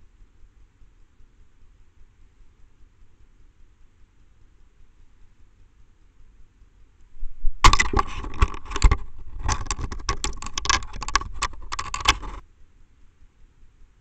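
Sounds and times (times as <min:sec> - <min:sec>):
owl scratching on wooden perch: 0:07.2 - 0:12.4.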